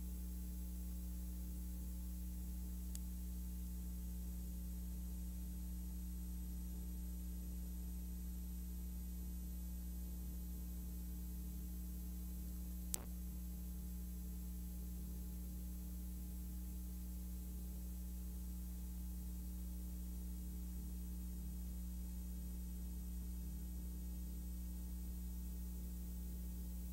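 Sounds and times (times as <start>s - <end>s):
low electrical hum: 0.0s - 26.9s
sharp click: 12.9s - 13.1s.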